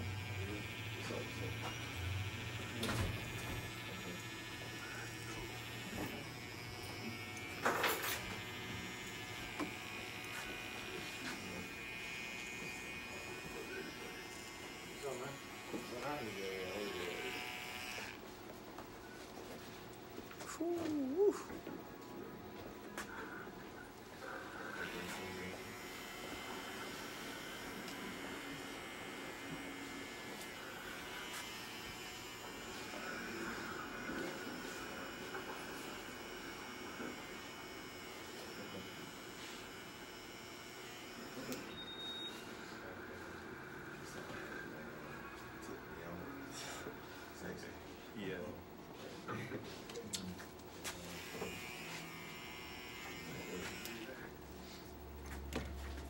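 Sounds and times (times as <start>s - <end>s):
electric hair clipper buzzing: 0.0s - 18.2s, 24.5s - 41.7s, 50.8s - 54.4s.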